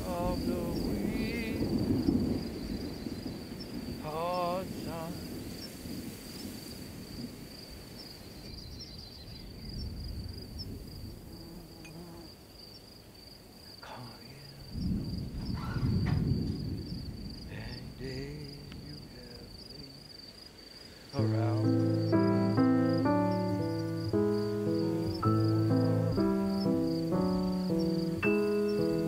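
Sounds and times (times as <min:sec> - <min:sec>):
crickets chirping: 0:00.0 - 0:29.0
low rush of noise: 0:21.2 - 0:29.0
music with picked notes: 0:21.2 - 0:29.0.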